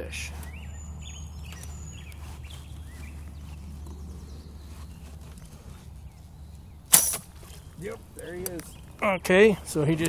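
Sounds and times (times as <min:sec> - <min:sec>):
faint bird chirps: 0:00.0 - 0:09.2
low steady hum: 0:00.0 - 0:10.0
bow string snap: 0:06.9 - 0:07.3.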